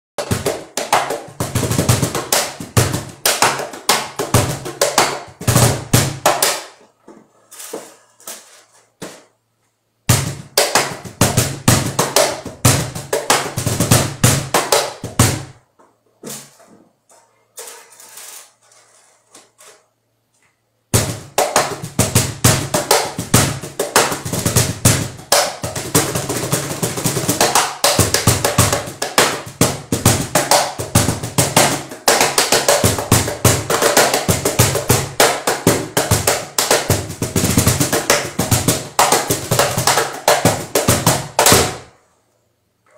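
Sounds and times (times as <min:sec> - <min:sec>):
cajon played with hands: 0:00.2 - 0:06.8, 0:10.1 - 0:16.6, 0:20.9 - 0:41.9.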